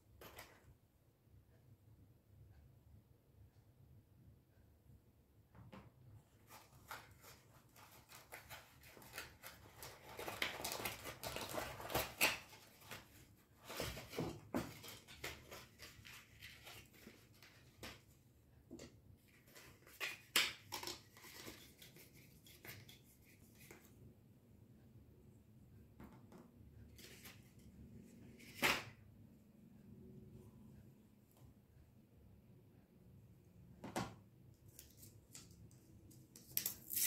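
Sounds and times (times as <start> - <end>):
plastic and foam packaging rustling: 6.3 - 18.1, 19.2 - 23.0.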